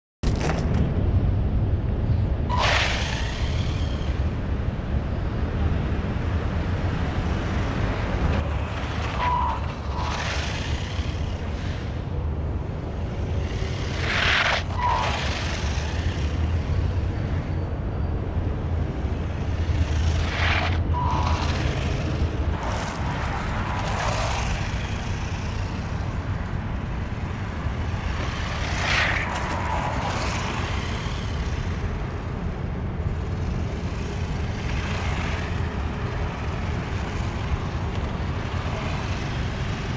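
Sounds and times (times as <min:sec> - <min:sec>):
steady low rumble: 0:00.2 - 0:02.5
rc car motor whine: 0:02.5 - 0:06.0, 0:06.6 - 0:39.9.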